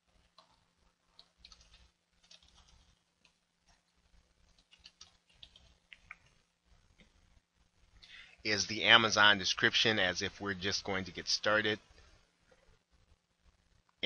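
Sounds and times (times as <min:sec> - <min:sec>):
keyboard typing: 0:00.2 - 0:06.3.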